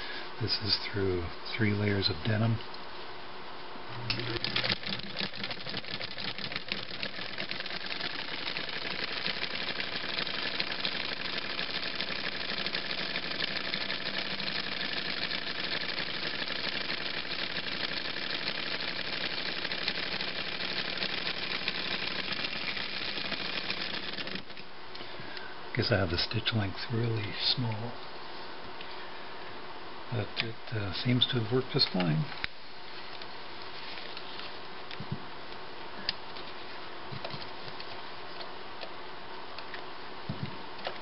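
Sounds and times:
sewing machine clatter: 0:04.1 - 0:24.6.

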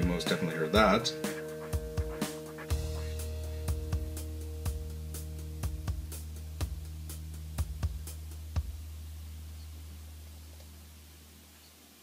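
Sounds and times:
held low bass note: 0:00.0 - 0:11.0
drum hit: 0:07.6 - 0:08.8.

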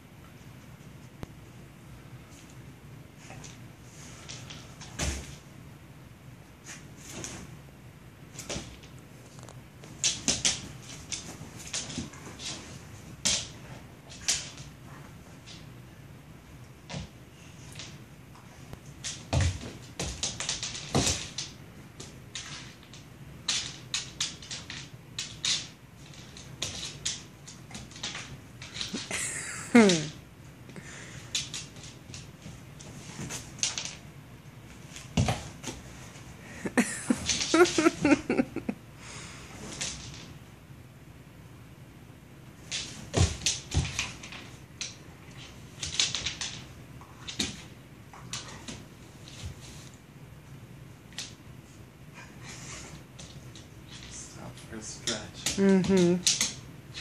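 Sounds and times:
dog claws clicking on wood floor: 0:18.8 - 0:29.2, 0:31.3 - 0:34.0, 0:42.6 - 0:50.0.

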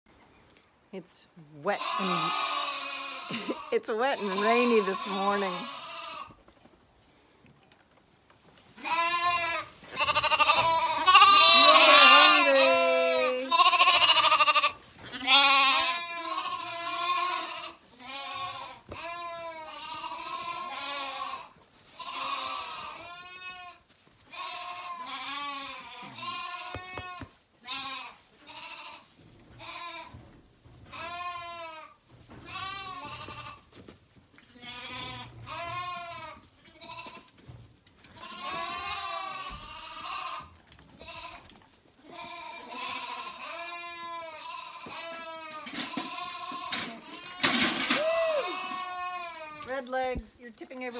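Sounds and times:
lambs bleating: 0:01.7 - 0:06.4, 0:08.8 - 0:30.2, 0:30.9 - 0:33.7, 0:34.5 - 0:37.3, 0:38.1 - 0:47.8, 0:48.4 - 0:49.8.

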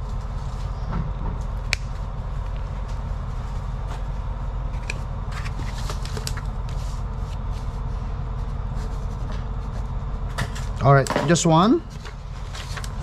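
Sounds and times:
low background hum: 0:00.0 - 0:13.0
paper rustling: 0:04.8 - 0:10.8, 0:11.9 - 0:13.0.

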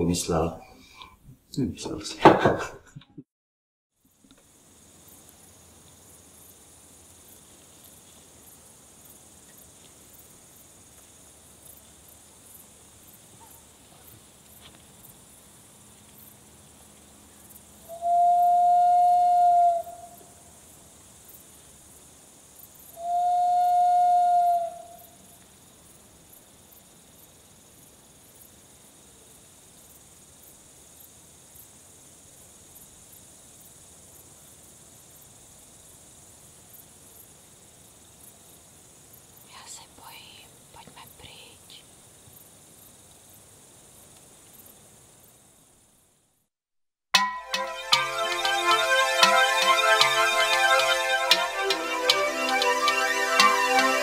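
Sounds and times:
crickets chirping: 0:04.1 - 0:46.4
loud whistle-like tone: 0:17.9 - 0:20.2, 0:23.0 - 0:25.0.

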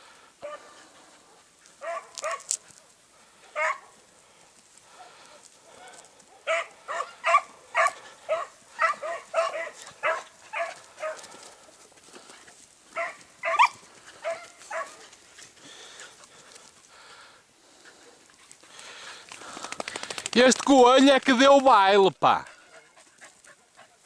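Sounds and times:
hounds baying: 0:00.4 - 0:04.1, 0:04.9 - 0:16.8, 0:22.4 - 0:24.0.

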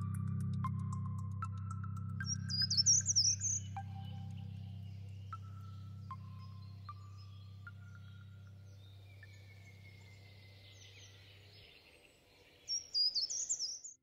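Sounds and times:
low music drone: 0:00.0 - 0:11.7
bird chirps: 0:02.2 - 0:14.0.

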